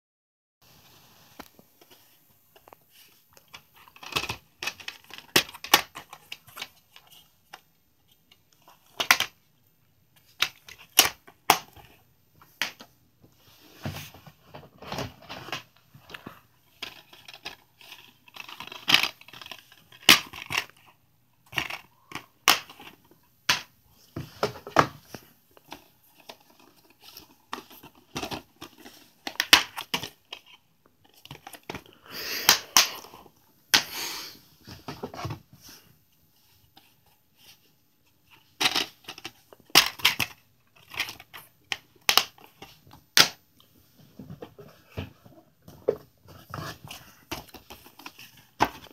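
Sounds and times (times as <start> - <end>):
plastic cases clicking and snapping: 3.4 - 7.6, 14.6 - 20.8, 21.5 - 23.7, 24.4 - 33.1, 38.6 - 43.4.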